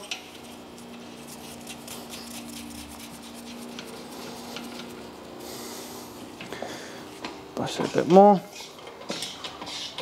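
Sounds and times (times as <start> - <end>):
steady low hum: 0.0 - 10.0
gloved hands rubbing: 1.1 - 5.1.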